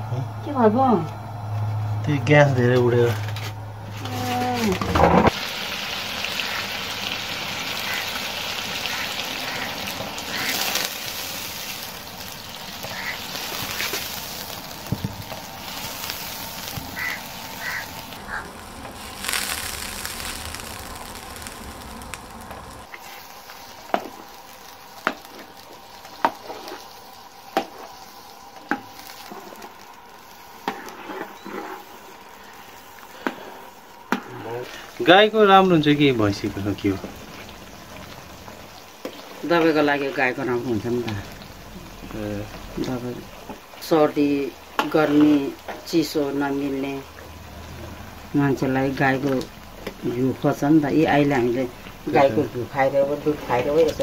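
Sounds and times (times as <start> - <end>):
butter sizzling in a pot: 3.9 - 54.0.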